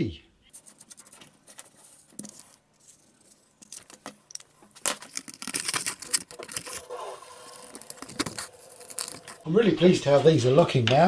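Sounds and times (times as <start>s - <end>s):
scissors snipping plastic: 4.8s - 6.8s.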